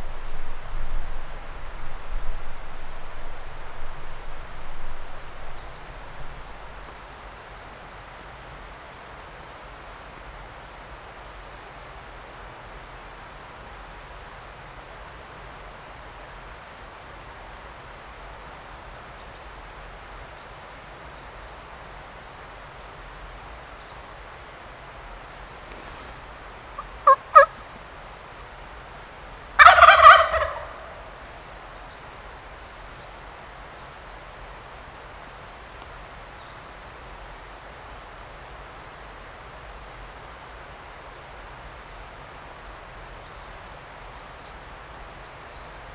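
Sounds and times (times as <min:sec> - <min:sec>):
songbird twittering: 0:00.0 - 0:04.0, 0:26.8 - 0:27.5
turkey gobbling: 0:26.8 - 0:27.6, 0:29.6 - 0:31.1.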